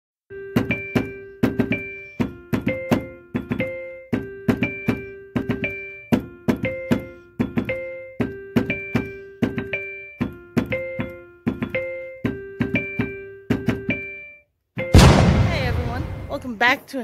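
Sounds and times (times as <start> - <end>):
sharp percussive beat: 15.0 - 16.6.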